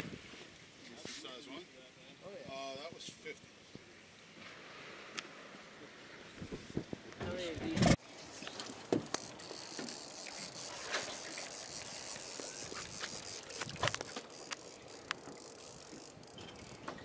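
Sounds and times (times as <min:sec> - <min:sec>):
fishing reel clicking and whirring: 0:08.3 - 0:17.0.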